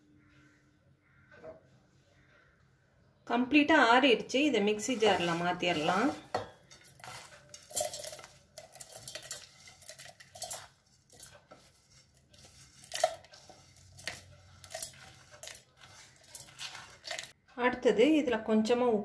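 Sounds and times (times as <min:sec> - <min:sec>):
metal scrapes and clinks: 0:04.9 - 0:17.3.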